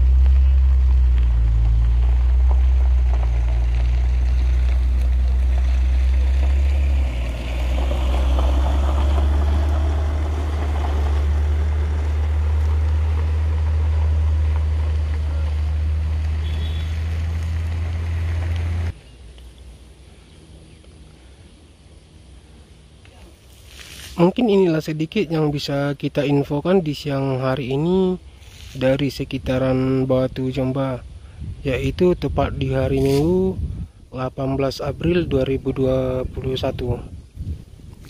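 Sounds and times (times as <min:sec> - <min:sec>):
truck diesel engines rumbling: 0:00.0 - 0:23.4
pickup tyres on gravel: 0:00.0 - 0:30.4, 0:31.0 - 0:38.0.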